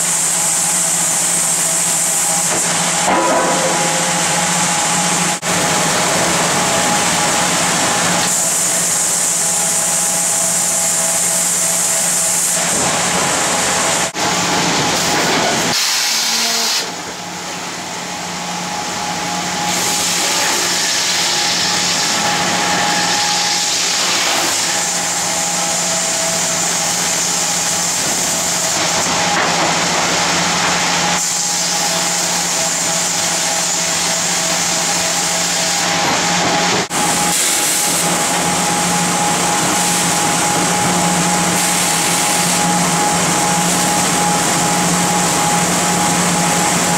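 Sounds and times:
sawmill machinery din: 0.0s - 46.9s
high saw noise: 15.6s - 17.0s, 19.6s - 29.4s.

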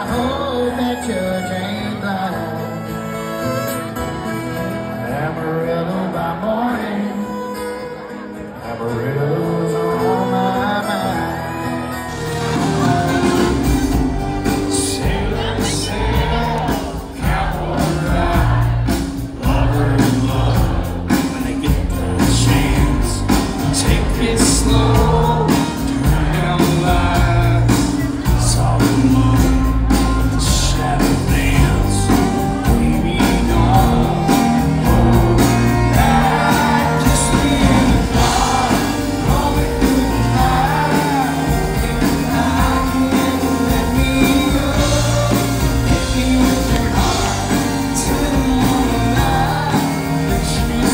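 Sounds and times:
bass: 0.0s - 6.6s, 9.0s - 50.9s
acoustic guitar: 0.0s - 50.9s
electric guitar: 0.0s - 50.9s
fiddle: 0.1s - 5.3s, 10.1s - 16.8s
person singing: 4.8s - 50.9s
drums: 11.1s - 50.9s.

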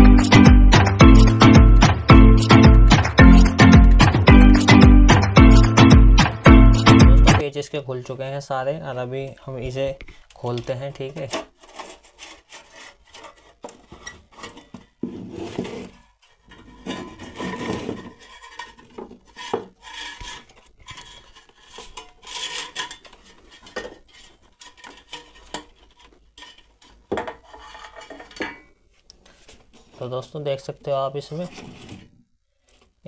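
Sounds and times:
sheet metal scraping and clinking: 15.3s - 28.6s.

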